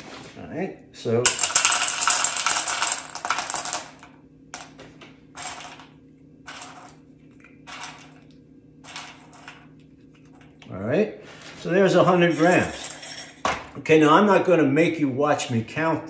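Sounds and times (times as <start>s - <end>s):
beans rattling into metal bowl: 1.3s - 4.0s, 5.4s - 5.9s, 6.5s - 7.0s, 7.7s - 8.2s, 8.8s - 9.6s, 12.2s - 13.4s.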